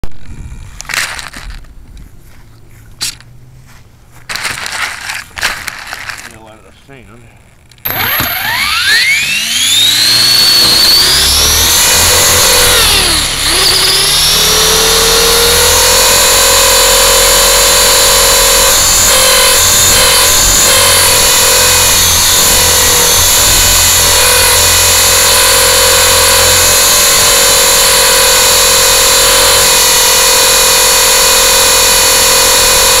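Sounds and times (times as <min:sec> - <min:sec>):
drone motors and propellers whining: 0:07.8 - 0:33.0.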